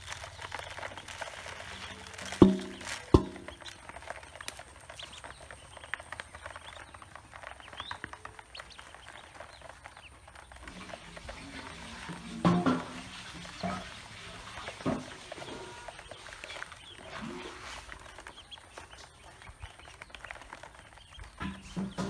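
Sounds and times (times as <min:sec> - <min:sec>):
ducklings pecking bill clicks: 0:00.0 - 0:22.0
ducklings peeping: 0:00.0 - 0:22.0.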